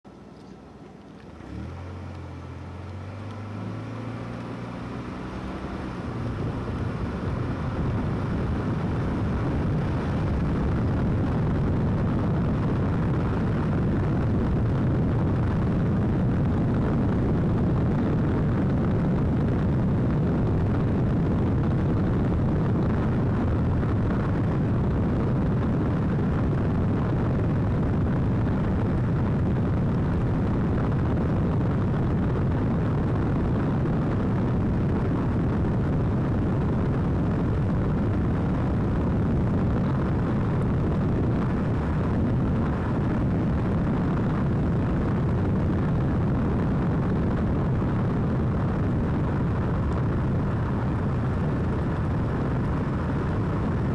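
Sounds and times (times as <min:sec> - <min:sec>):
road noise: 0:00.0 - 0:53.9
car engine pulling away: 0:00.4 - 0:53.9
wind buffeting microphone: 0:01.5 - 0:53.9.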